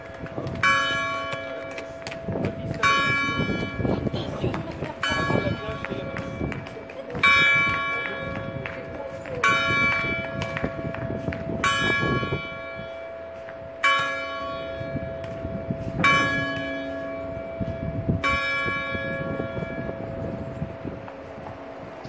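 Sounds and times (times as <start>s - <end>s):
clock bell striking: 11.6s - 20.8s.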